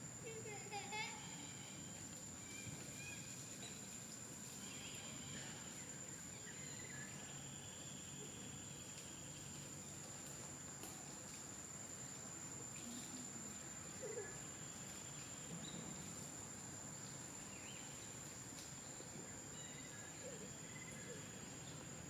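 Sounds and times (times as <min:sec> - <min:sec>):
insects droning: 0:00.0 - 0:22.0
faint bird chirps: 0:19.5 - 0:21.8.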